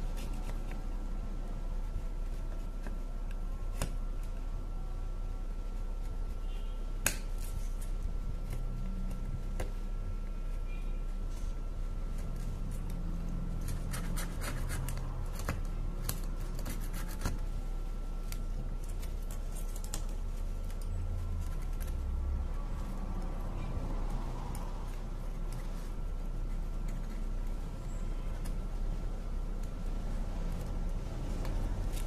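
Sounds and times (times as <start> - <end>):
steady low hum: 0.0 - 32.0.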